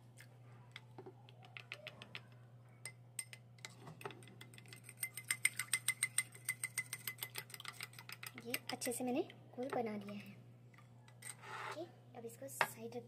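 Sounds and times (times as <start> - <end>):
spoon clinking against glass bowl: 2.8 - 8.8.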